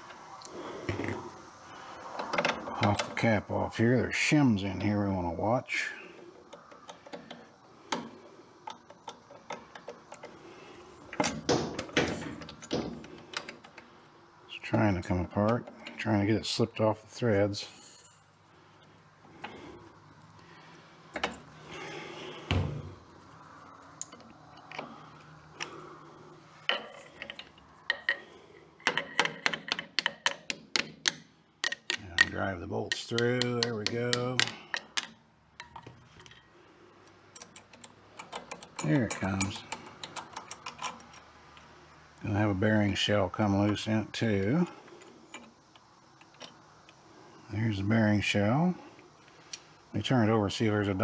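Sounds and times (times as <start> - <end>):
metallic clicks and taps: 26.6 - 41.7.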